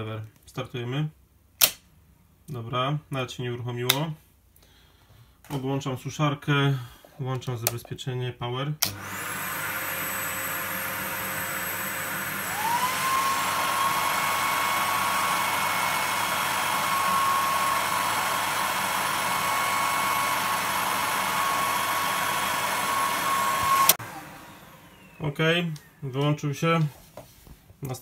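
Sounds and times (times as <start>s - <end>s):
hair dryers running: 8.8s - 26.0s
fan motor whine: 8.9s - 26.0s.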